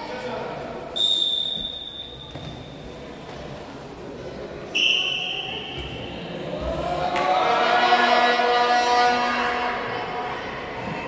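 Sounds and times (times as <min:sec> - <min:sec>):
referee's whistle: 0:01.0 - 0:02.4, 0:04.7 - 0:05.8
crowd chanting: 0:06.4 - 0:11.0.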